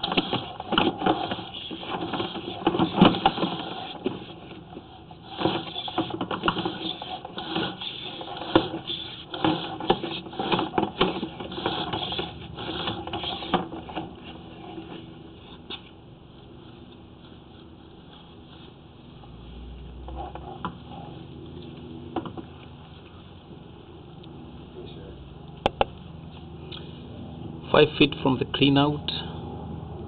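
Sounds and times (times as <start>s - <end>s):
cable reel rattling and clicking: 0.0s - 15.9s.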